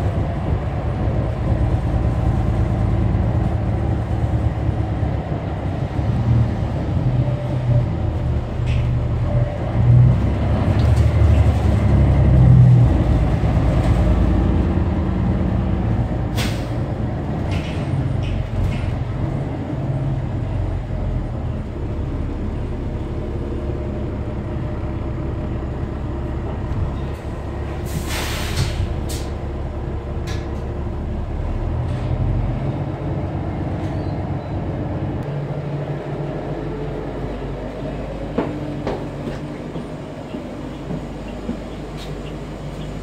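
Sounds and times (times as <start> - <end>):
diesel bus running: 0.0 - 43.0
air brake hiss: 16.4 - 16.8, 27.8 - 29.4.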